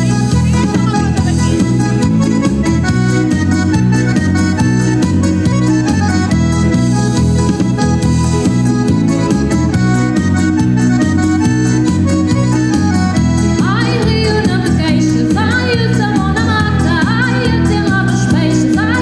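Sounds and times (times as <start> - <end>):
steady bass beat: 0.0 - 15.0
live band playing dance music: 0.0 - 19.0
wavering lead melody: 0.0 - 19.0.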